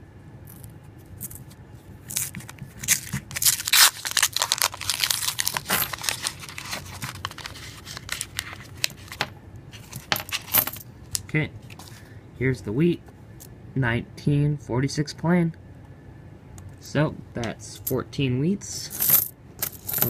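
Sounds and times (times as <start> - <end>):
paper wrapper tearing and crumpling: 2.1 - 9.2.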